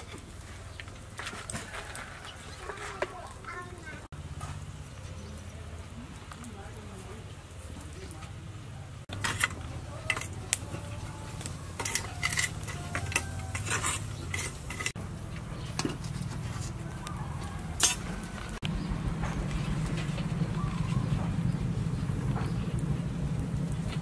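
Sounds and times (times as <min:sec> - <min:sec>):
charcoal and metal gear clinking: 0:09.1 - 0:18.4
steady low rumble: 0:14.3 - 0:24.0.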